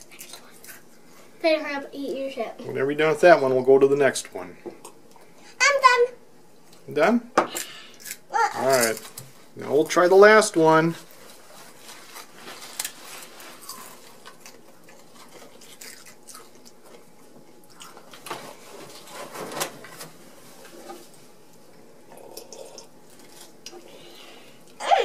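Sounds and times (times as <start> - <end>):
quiet chewing: 0.0 - 1.2, 12.8 - 18.2
potato chips crunching: 12.2 - 18.2.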